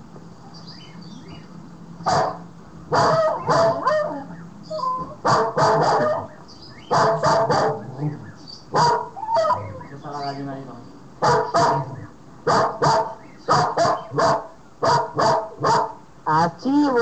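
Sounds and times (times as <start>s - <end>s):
dogs barking through speakers: 2.0s - 10.4s, 11.2s - 16.1s.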